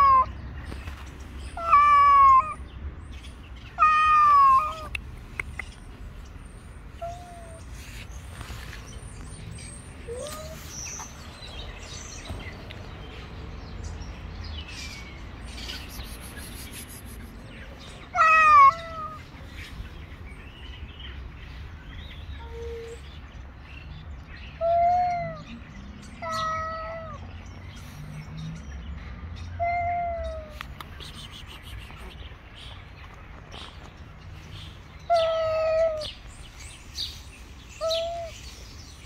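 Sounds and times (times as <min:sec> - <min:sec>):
cat meowing: 0:00.0 - 0:00.3, 0:01.6 - 0:02.6, 0:03.8 - 0:04.9, 0:07.0 - 0:07.6, 0:18.1 - 0:19.3, 0:26.2 - 0:27.2, 0:35.1 - 0:36.1.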